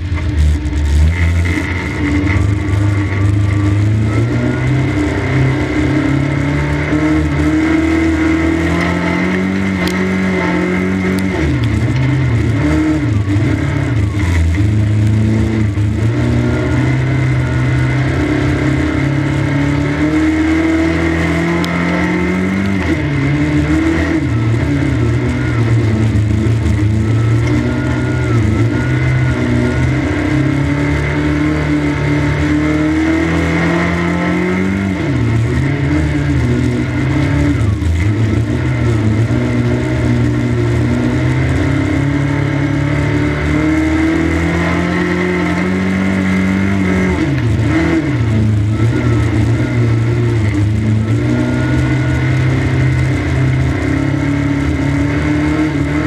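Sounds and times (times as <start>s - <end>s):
racing car engine revving: 0.0s - 56.0s.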